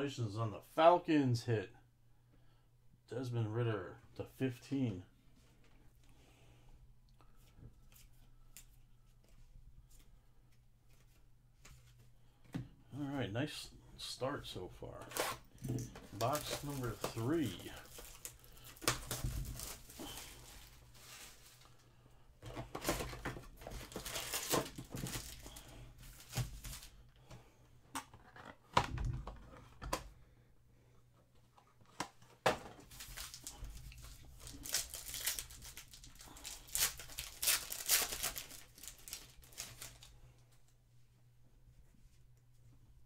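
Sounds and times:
foil packs being torn open: 15.1s - 20.8s, 22.9s - 26.9s, 32.9s - 40.1s
shrink wrap crinkling: 15.1s - 21.9s, 22.8s - 27.0s, 32.9s - 40.3s.

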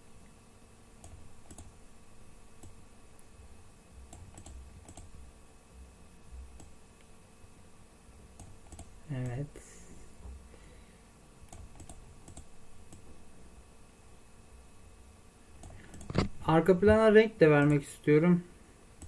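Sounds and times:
low steady hum: 0.0s - 19.0s
mouse and keyboard clicks: 4.1s - 5.1s, 8.4s - 8.9s, 15.6s - 16.4s.

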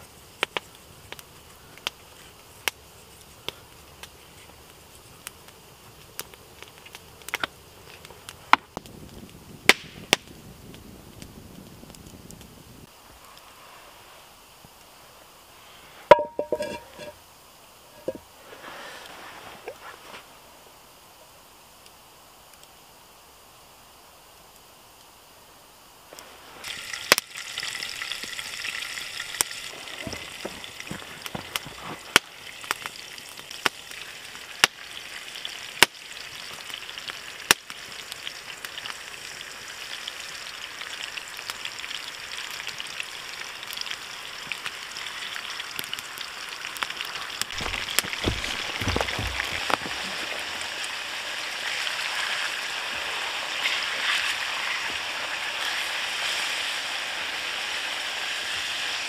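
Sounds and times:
sharp pops of frying fat: 0.4s - 2.0s, 9.6s - 10.4s, 29.4s - 33.9s, 34.5s - 39.0s, 45.7s - 50.4s
meat sizzling in frying pan: 26.6s - 59.0s
dull knocks: 47.6s - 50.0s.

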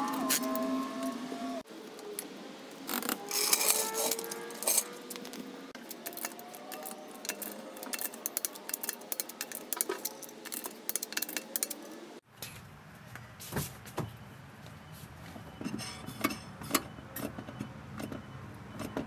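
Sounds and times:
steel jack parts clanking: 3.3s - 5.3s.

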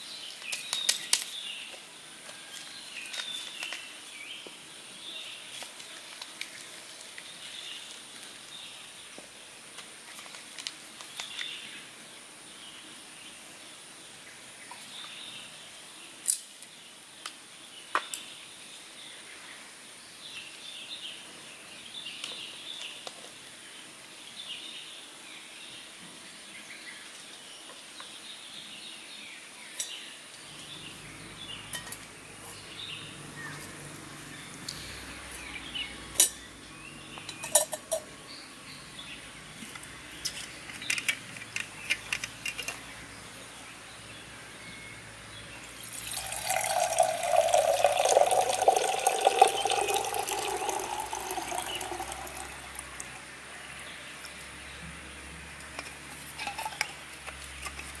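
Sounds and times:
water pouring into metal kettle: 45.8s - 53.2s.

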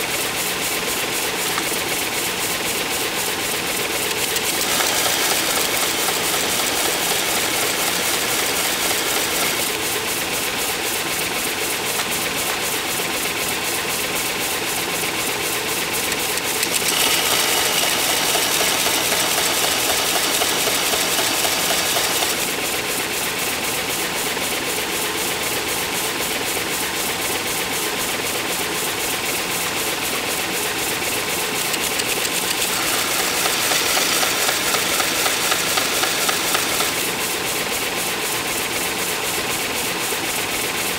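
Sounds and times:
belt sander grinding metal: 4.1s - 9.9s, 16.4s - 22.6s, 31.7s - 37.2s.

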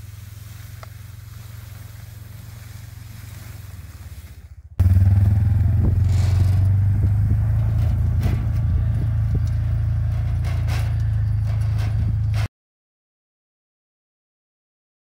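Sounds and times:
quad bike engine running: 0.0s - 12.5s
trailer knocking and rattling: 4.8s - 12.5s.

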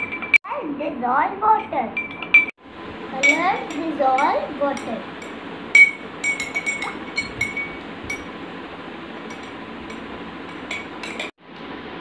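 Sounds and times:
steady background hiss: 0.0s - 12.0s
spoon clinking against glass: 1.6s - 2.5s, 3.2s - 3.9s, 4.8s - 8.3s, 9.3s - 11.3s.

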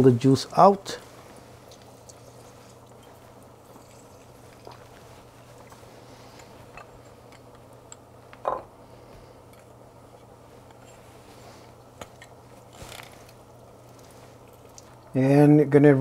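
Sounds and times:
juice squishing and dripping: 0.4s - 8.5s, 11.6s - 15.2s.

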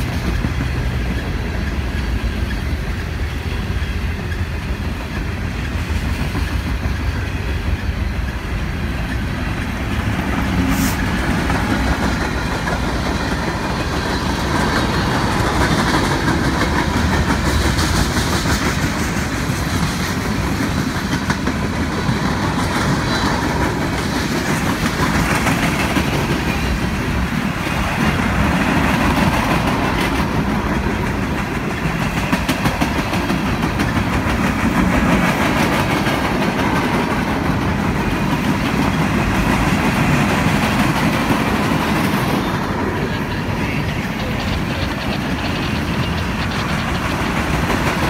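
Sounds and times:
freight train wheels rumbling on rail: 0.0s - 48.0s
rapid rail clicks: 0.0s - 48.0s.

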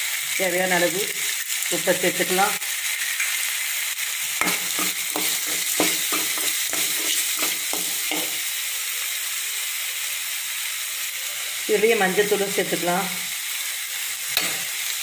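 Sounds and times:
vegetables sizzling in oil: 0.0s - 15.0s
ladle scraping and knocking pan: 4.4s - 8.4s.

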